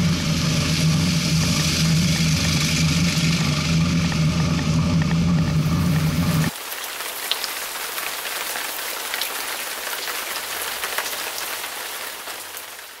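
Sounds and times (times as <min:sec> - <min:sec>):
low traffic hum: 0:00.0 - 0:06.6
steady rain falling: 0:00.0 - 0:13.0.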